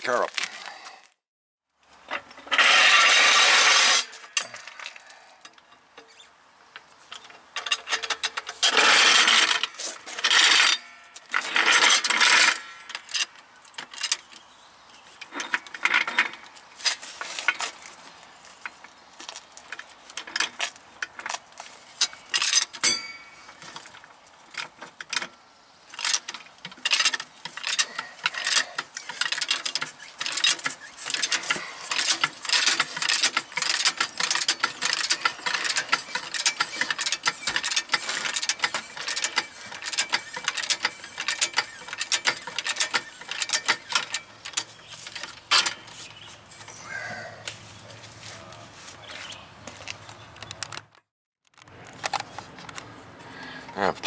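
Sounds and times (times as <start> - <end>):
floor jack scraping on asphalt: 2.1 - 5.0, 7.9 - 12.8, 15.3 - 18.5, 26.2 - 49.9
metal clicks and clanks: 7.1 - 14.4, 18.6 - 21.4, 22.0 - 46.8.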